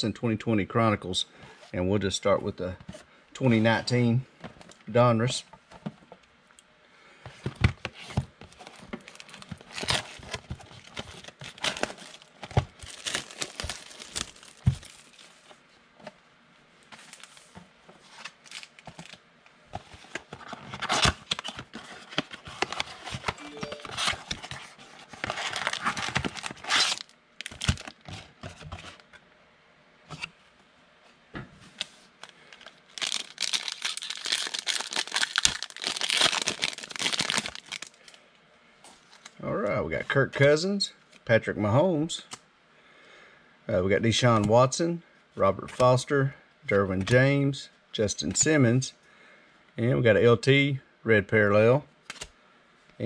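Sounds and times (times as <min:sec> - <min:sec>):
foil card pack tearing: 0:08.6 - 0:15.2, 0:22.6 - 0:28.2, 0:32.5 - 0:38.2.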